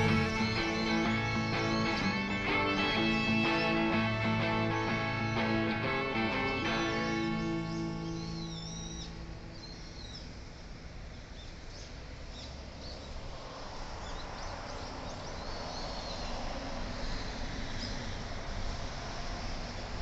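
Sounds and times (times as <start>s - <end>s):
guitar music: 0.0s - 9.6s
birds chirping: 0.0s - 13.2s
outdoor background hiss: 0.0s - 20.0s.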